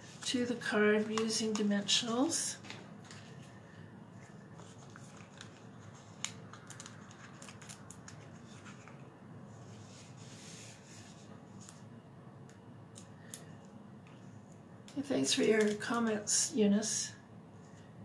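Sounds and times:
paper rustling: 0:00.0 - 0:09.1.

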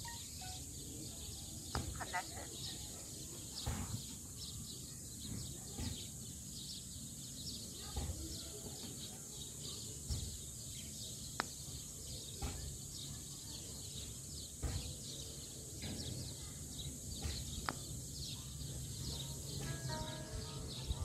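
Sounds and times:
faint chirping: 0:00.0 - 0:21.0.

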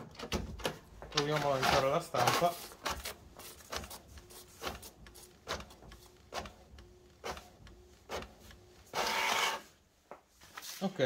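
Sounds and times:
printer carriage whirring: 0:00.0 - 0:10.0.

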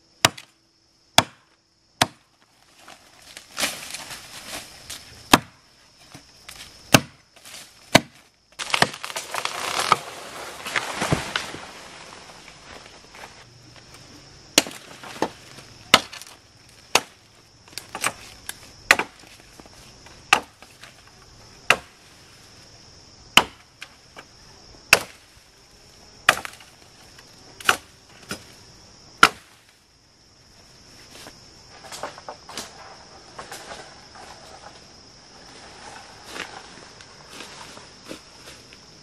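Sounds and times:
wood chopping with blade: 0:00.2 - 0:00.5, 0:01.2 - 0:02.3, 0:03.0 - 0:11.5, 0:14.6 - 0:17.2, 0:17.8 - 0:19.4, 0:20.3 - 0:20.8, 0:21.6 - 0:22.0, 0:23.3 - 0:23.9, 0:24.9 - 0:25.2, 0:26.2 - 0:26.7, 0:27.6 - 0:28.5, 0:29.2 - 0:29.6.

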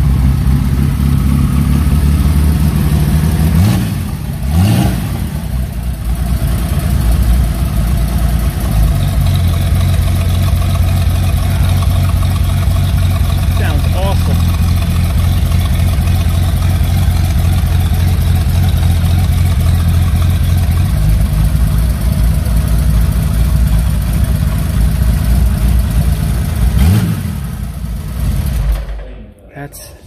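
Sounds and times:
motorcycle engine idling: 0:00.0 - 0:04.4, 0:05.2 - 0:29.0.

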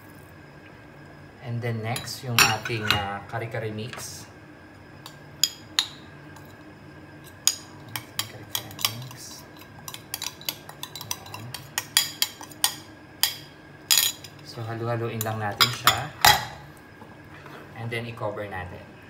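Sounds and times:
utensils clinking on metal pan: 0:07.5 - 0:14.4.

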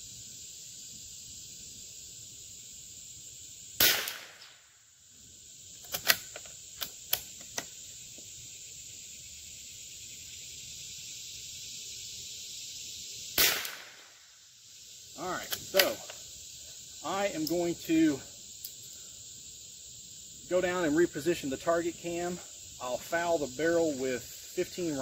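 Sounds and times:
crickets chirring: 0:00.0 - 0:25.0
rifle shot: 0:03.8 - 0:04.6, 0:13.4 - 0:14.2
rifle bolt metallic clicks: 0:05.8 - 0:07.6.

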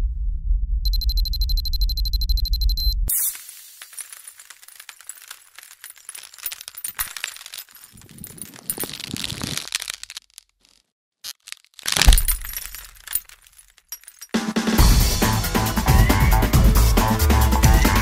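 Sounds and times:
ice crackling: 0:03.1 - 0:14.3
glass clinking: 0:03.2 - 0:09.3.

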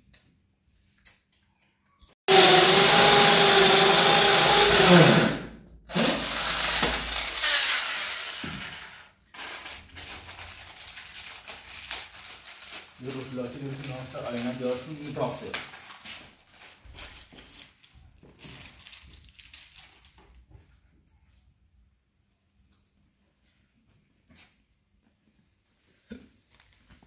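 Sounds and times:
electric drill boring into wall: 0:02.3 - 0:09.2.

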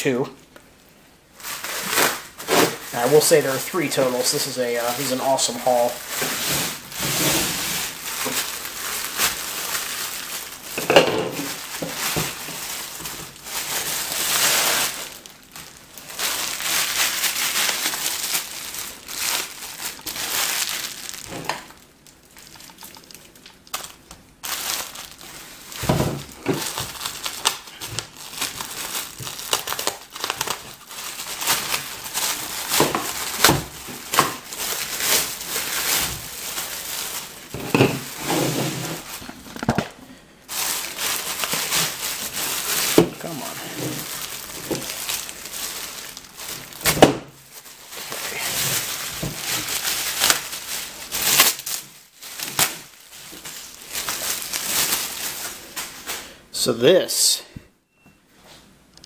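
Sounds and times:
bubble wrap crinkling: 0:00.4 - 0:56.3.

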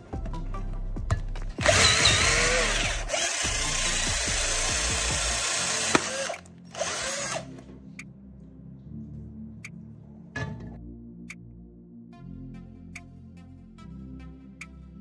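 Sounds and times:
cordless drill boring into wood: 0:01.6 - 0:07.5.

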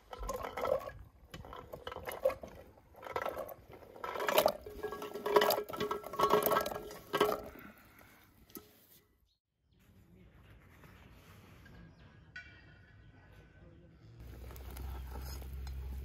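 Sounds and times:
metal pot ringing: 0:00.0 - 0:07.6
chestnuts clattering into metal pot: 0:00.0 - 0:08.0.

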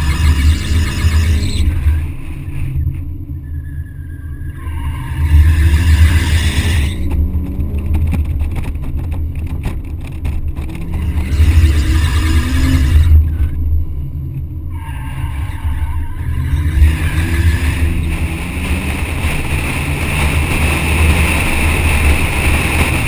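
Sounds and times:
car engine revving: 0:00.0 - 0:23.0
wind buffeting microphone: 0:16.2 - 0:23.0.

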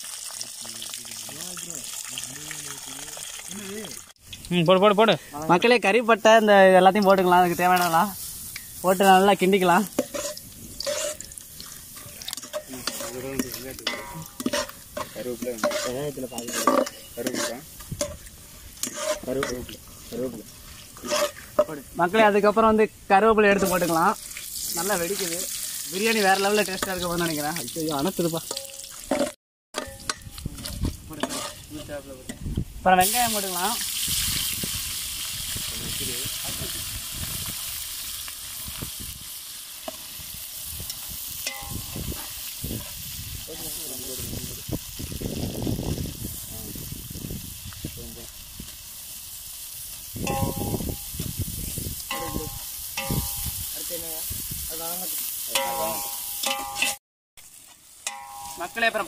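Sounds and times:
spices sizzling in oil: 0:00.0 - 0:59.0
metal ladle scraping pot: 0:09.9 - 0:21.9, 0:28.5 - 0:32.5, 0:41.4 - 0:42.9, 0:55.5 - 0:57.0
sharp metallic clink: 0:41.4 - 0:42.0, 0:52.1 - 0:53.6, 0:55.6 - 0:57.0, 0:58.0 - 0:58.9.

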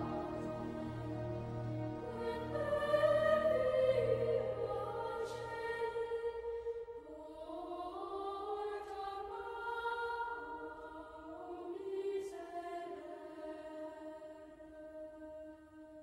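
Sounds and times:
slow instrumental music: 0:00.0 - 0:04.7.

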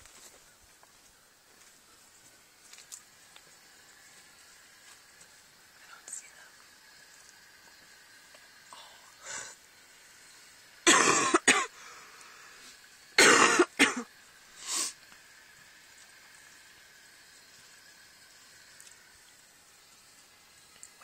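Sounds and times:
person coughing: 0:10.9 - 0:11.7, 0:13.2 - 0:14.1.

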